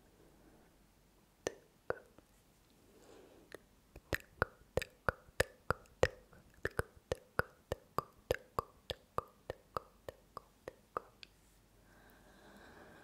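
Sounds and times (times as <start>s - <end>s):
tongue clicks: 1.4s - 2.2s, 3.5s - 11.4s.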